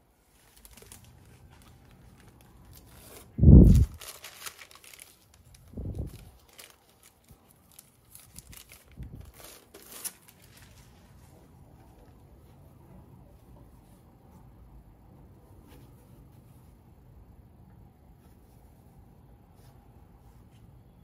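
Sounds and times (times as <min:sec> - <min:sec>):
plastic sleeve crinkling: 0:00.2 - 0:11.4.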